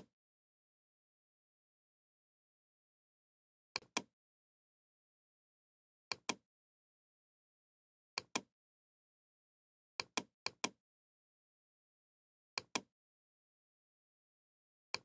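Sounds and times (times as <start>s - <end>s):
computer mouse clicking: 12.6s - 12.9s.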